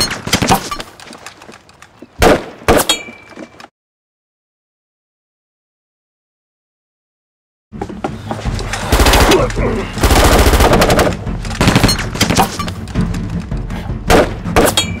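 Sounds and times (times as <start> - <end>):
film score music: 7.7 - 15.0
scattered gunshots: 8.9 - 12.5.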